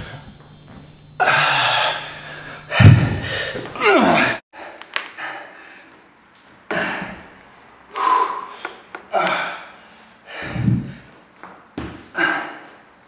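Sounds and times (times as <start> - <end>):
man breathing hard: 1.2 - 3.6, 7.9 - 11.2, 12.1 - 12.8.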